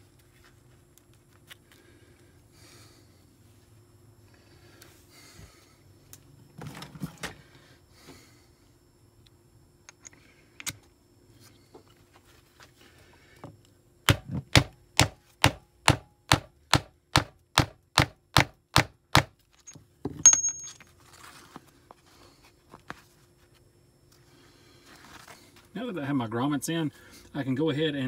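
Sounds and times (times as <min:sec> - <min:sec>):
metal clink with high ring: 0:19.6 - 0:20.9.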